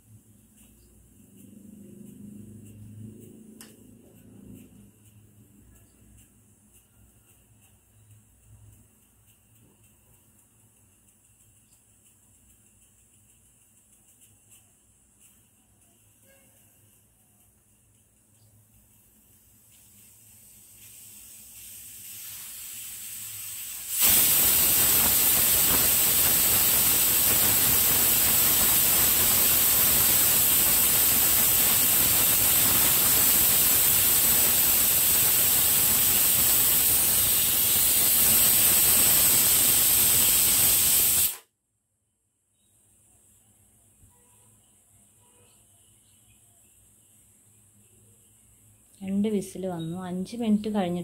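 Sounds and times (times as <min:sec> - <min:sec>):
pressure cooker whistle steam jet: 0:16.2 - 0:16.8, 0:22.2 - 0:41.4.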